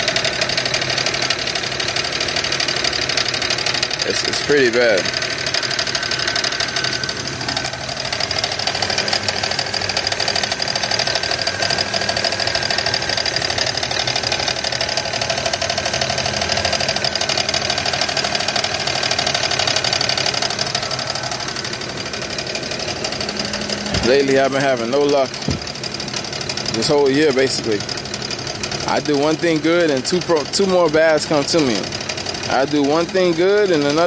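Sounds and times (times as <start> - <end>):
car engine idling with knocking: 0.0 - 34.0.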